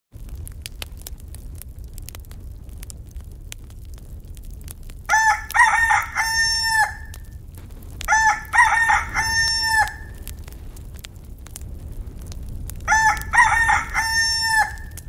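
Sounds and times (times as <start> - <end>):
rooster crowing: 5.1 - 7.2, 8.1 - 10.4, 12.9 - 15.0.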